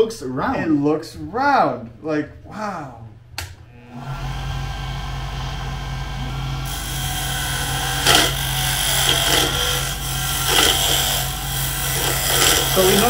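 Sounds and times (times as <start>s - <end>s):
wood lathe motor running: 3.8s - 13.0s
chisel scraping spinning wood: 6.4s - 13.0s.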